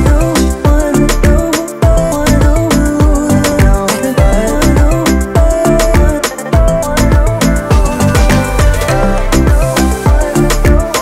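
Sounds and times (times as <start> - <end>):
music with deep bass kick drum: 0.0 - 11.0.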